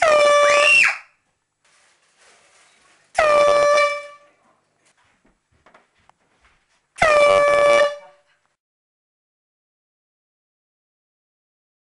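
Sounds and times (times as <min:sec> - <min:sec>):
air horn blasts: 0:03.2 - 0:04.3, 0:07.0 - 0:08.3.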